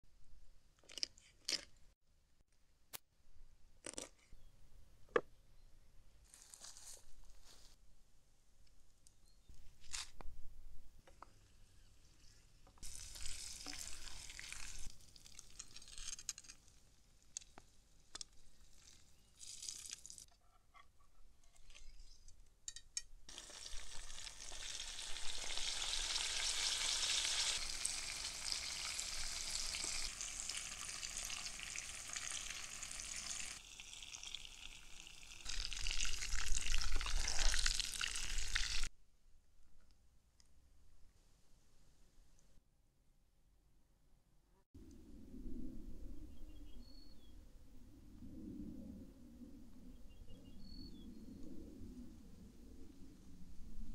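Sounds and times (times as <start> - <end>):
food sizzling in frying pan: 23.3 - 38.9.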